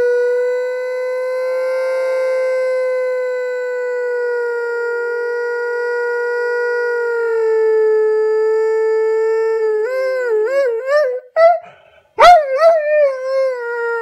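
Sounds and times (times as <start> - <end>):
dog howling in slow motion: 0.0 - 11.0.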